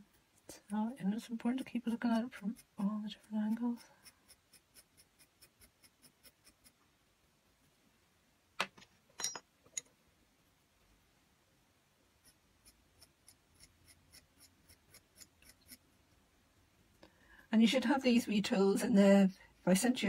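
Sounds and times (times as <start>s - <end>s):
tool scratching clay: 0.6s - 6.8s, 12.2s - 16.2s.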